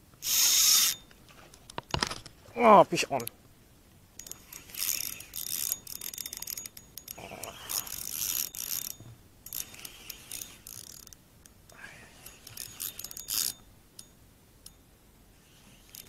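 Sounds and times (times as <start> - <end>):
fishing reel gears whirring: 0.2 - 1.0, 4.2 - 14.8, 15.4 - 16.0.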